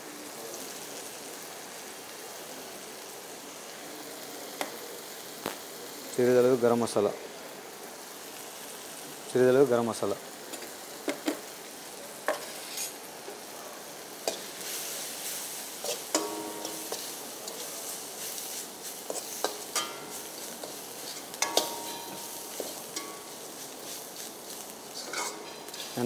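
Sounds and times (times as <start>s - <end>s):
masala sizzling in a wok: 0.0s - 26.0s
spatula stirring and scraping: 12.3s - 13.0s, 14.2s - 26.0s
spatula clinking against pan: 15.8s - 17.6s, 19.1s - 24.0s, 25.0s - 26.0s.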